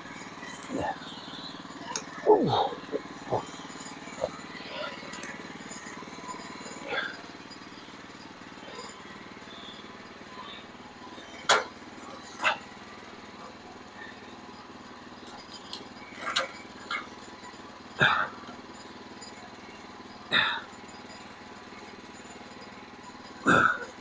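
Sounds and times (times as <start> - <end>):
small engine idling: 0.0 - 24.0.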